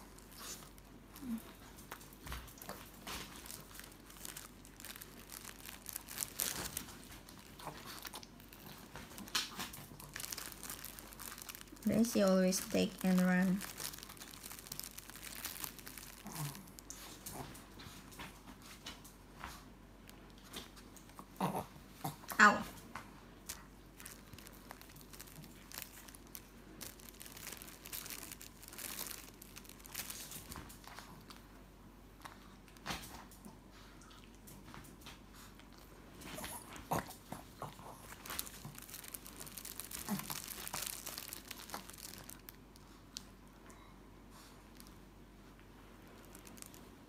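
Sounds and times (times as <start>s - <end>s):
bread tearing: 2.6s - 17.4s, 23.5s - 31.4s, 36.4s - 42.6s.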